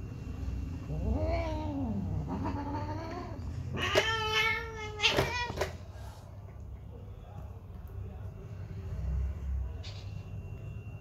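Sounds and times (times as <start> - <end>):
cat caterwauling: 0.8 - 5.7.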